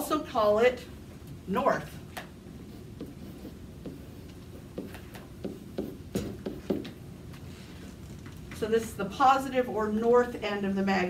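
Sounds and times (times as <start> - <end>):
pen tapping on whiteboard: 4.7 - 7.0.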